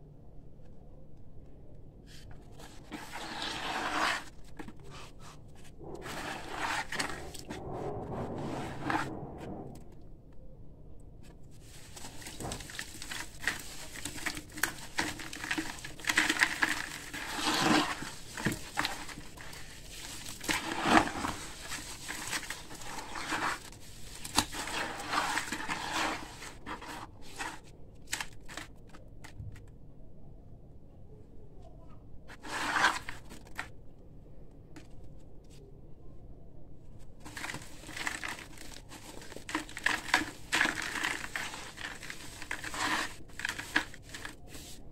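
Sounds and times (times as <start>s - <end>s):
wet gritty concrete crunching: 12.0s - 27.6s.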